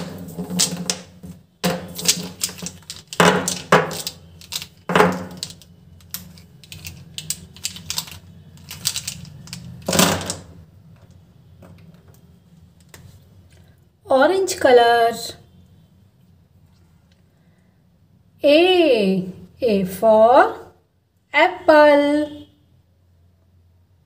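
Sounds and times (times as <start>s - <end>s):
plastic marker pens clicking: 1.9s - 10.0s.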